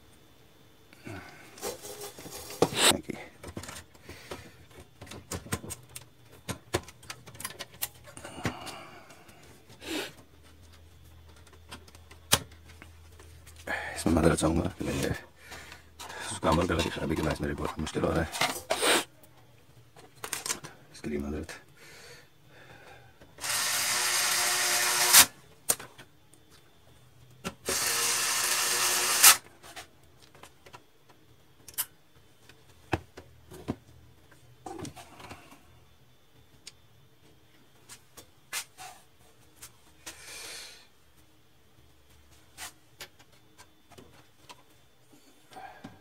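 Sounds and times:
electric screwdriver whirring: 0:23.4 - 0:25.3, 0:27.6 - 0:29.4.

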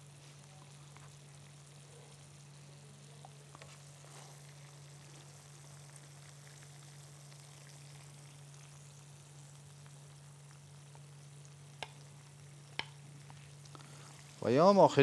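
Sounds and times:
meatballs sizzling in pan: 0:00.0 - 0:15.0
steady low hum: 0:00.0 - 0:15.0.

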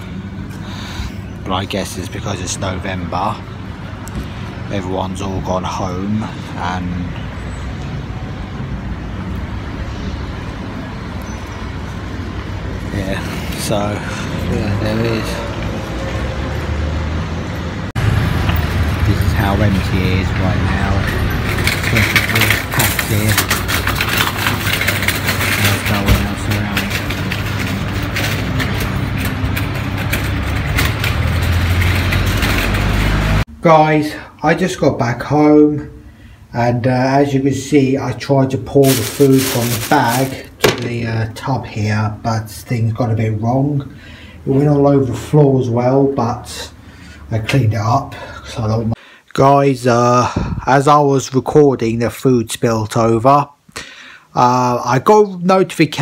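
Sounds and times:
street noise: 0:00.0 - 0:49.3.

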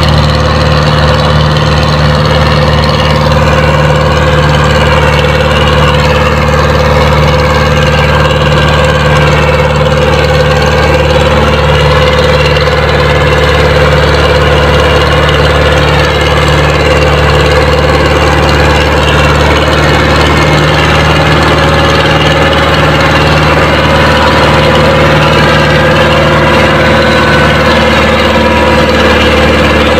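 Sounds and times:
tractor diesel engine under load: 0:00.0 - 0:29.9.

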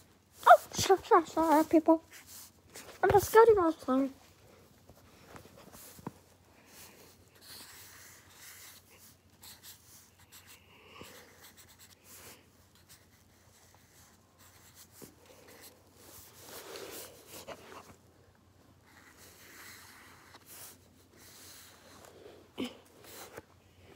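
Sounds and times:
markers scratching on paper: 0:00.4 - 0:03.7, 0:06.7 - 0:17.9, 0:18.8 - 0:21.9.

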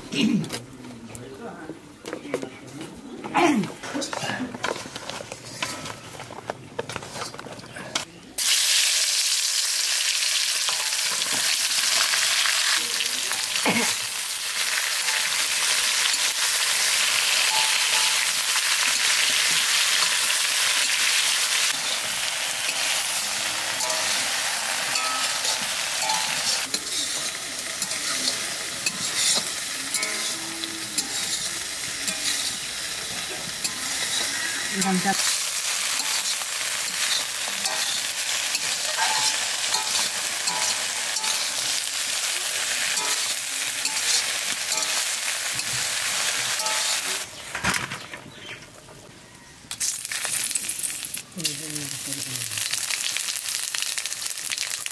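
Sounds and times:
slices sizzling in hot oil: 0:08.4 - 0:47.3, 0:49.7 - 0:54.9
metal spatula stirring in wok: 0:14.5 - 0:47.2.

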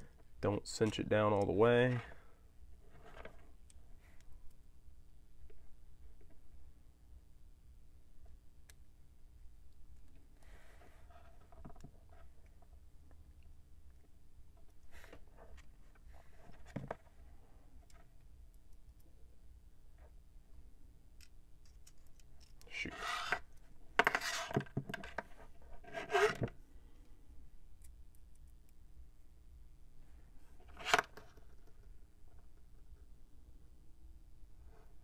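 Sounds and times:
faint clicks of small parts: 0:11.4 - 0:19.2, 0:21.1 - 0:23.8, 0:26.9 - 0:28.8.

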